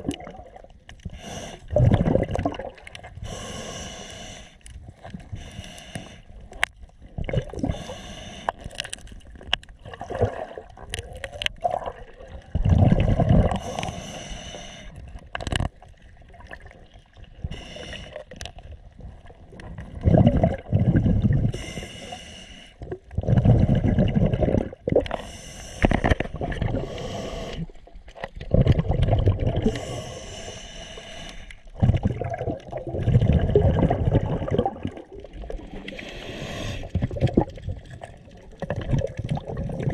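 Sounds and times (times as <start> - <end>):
bubbling exhalations underwater: 0.0 - 3.4, 7.0 - 7.9, 9.8 - 14.0, 19.0 - 21.7, 22.8 - 25.2, 26.0 - 30.1, 31.7 - 36.2, 36.8 - 39.9
hissing regulator inhalation: 3.2 - 4.6, 26.8 - 27.7, 29.6 - 31.6, 35.9 - 37.0.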